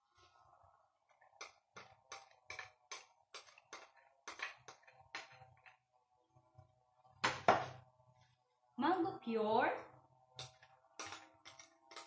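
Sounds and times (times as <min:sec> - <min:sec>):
soft tapping and scraping of bowl: 0:01.0 - 0:05.9, 0:10.3 - 0:12.0.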